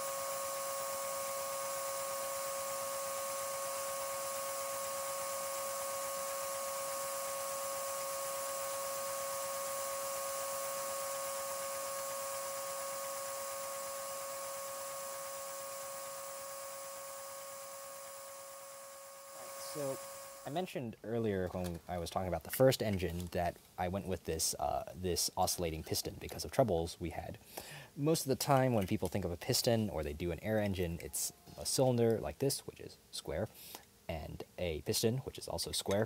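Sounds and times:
vacuum cleaner whine and hiss: 0:00.0 - 0:20.7.

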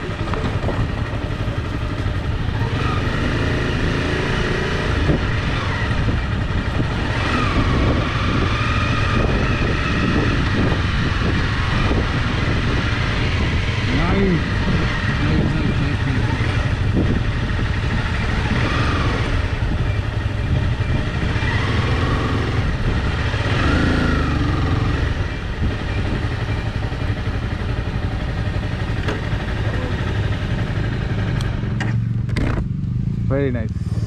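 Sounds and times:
motorcycle engine running slowly: 0:00.0 - 0:04.1, 0:14.2 - 0:34.0.

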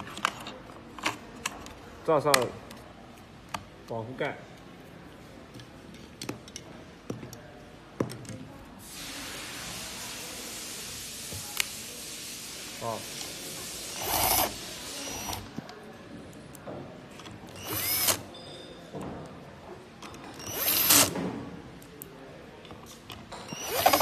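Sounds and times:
cordless drill whirring: 0:13.9 - 0:15.4, 0:17.5 - 0:18.2, 0:20.4 - 0:21.2, 0:23.5 - 0:24.0.

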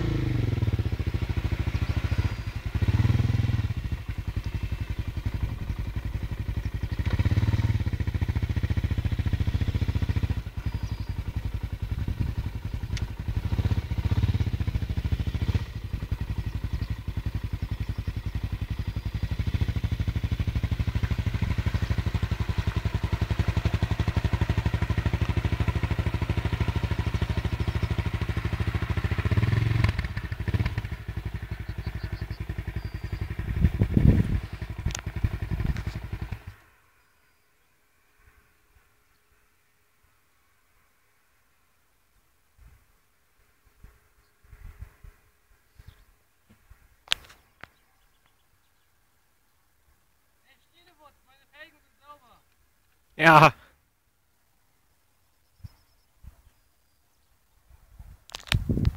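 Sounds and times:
quad bike engine revving: 0:00.0 - 0:36.6.

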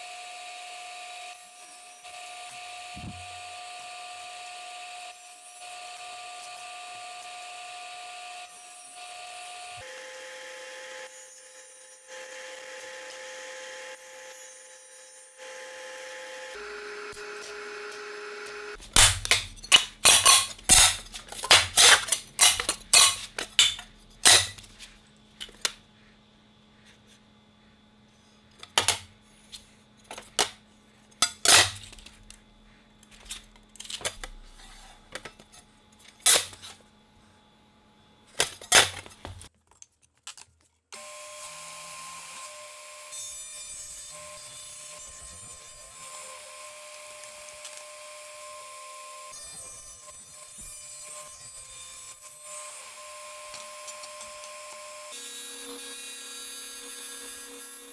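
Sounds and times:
metal sheets clanking on steel table: 0:19.6 - 0:24.6.

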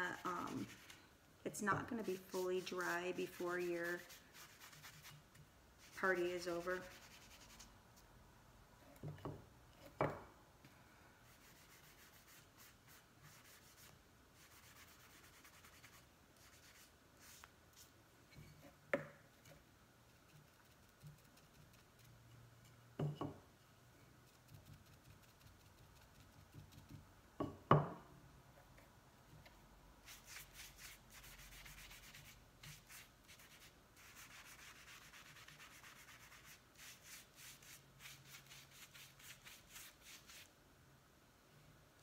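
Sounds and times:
brush rubbing on wood: 0:01.9 - 0:05.2, 0:05.8 - 0:07.7, 0:30.1 - 0:40.5
wood knocking on table: 0:27.4 - 0:28.0.

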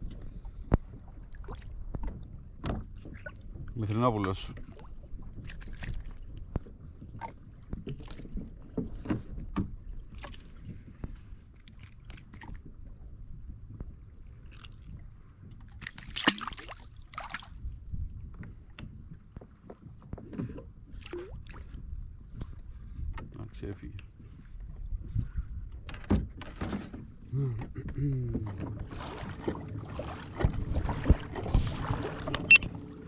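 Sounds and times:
water lapping against kayak: 0:00.0 - 0:23.4, 0:24.0 - 0:33.0.

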